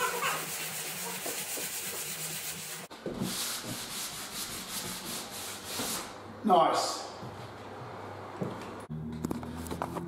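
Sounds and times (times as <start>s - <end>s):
sandpaper rubbing wood: 0.0s - 6.1s.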